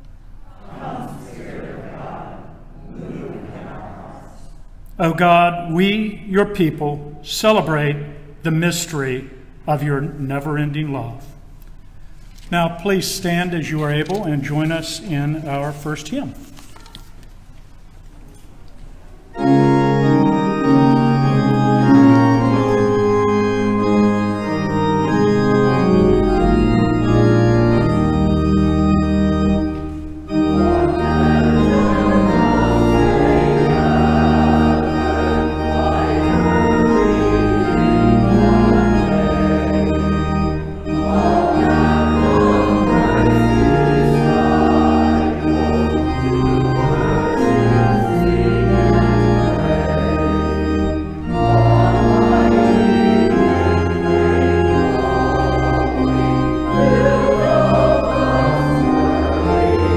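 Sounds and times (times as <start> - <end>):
church organ chords: 0.0 - 17.9, 19.2 - 59.9
deep organ pedal bass: 19.3 - 59.9.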